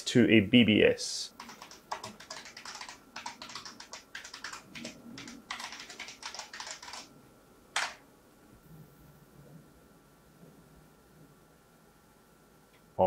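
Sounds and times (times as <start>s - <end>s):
fast keyboard typing: 1.4s - 7.1s, 7.8s - 8.0s.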